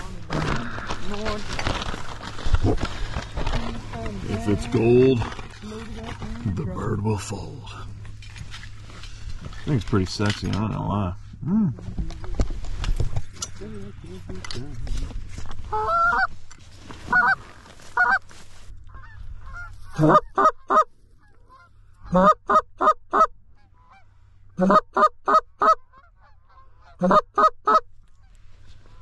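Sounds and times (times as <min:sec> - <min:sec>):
goose honking: 0:15.7 - 0:16.3, 0:17.1 - 0:18.3, 0:18.9 - 0:27.9.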